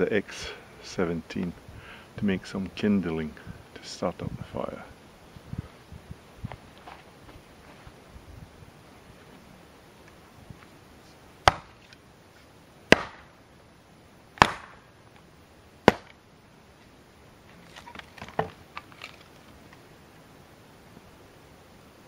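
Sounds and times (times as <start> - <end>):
axe chopping wood: 11.4 - 11.9, 12.9 - 13.3, 14.4 - 14.8, 15.8 - 16.2.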